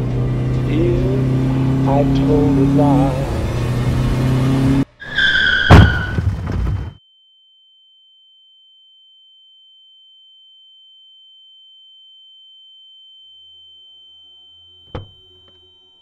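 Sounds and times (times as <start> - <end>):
tyres screeching: 0.7 - 6.3
high steady ringing tone: 7.0 - 16.0.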